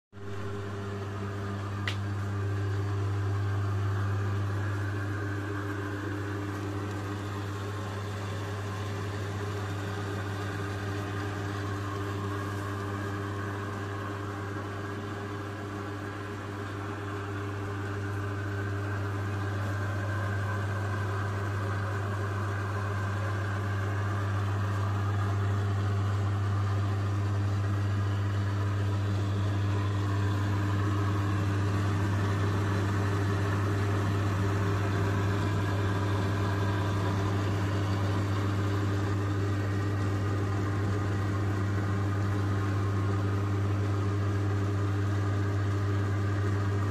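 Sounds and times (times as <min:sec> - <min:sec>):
electric motor humming: 0:27.1 - 0:43.6.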